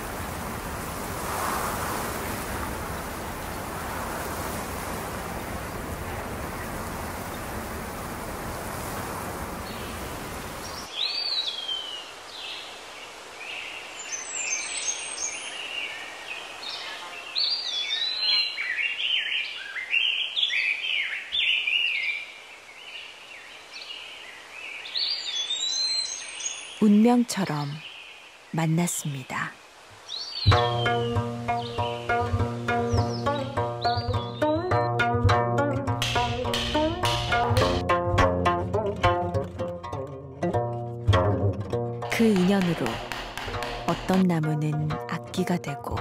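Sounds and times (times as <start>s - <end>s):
songbirds singing: 9.6s - 35.1s.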